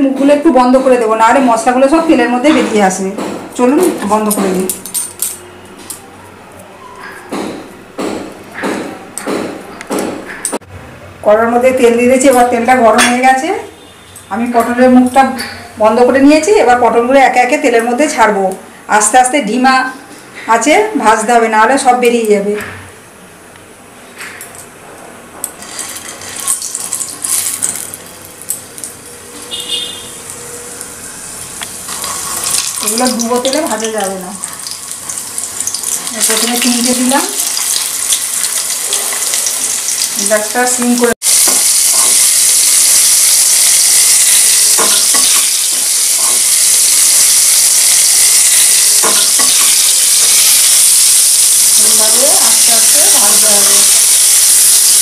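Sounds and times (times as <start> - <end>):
hot oil sizzling: 25.6 - 55.0.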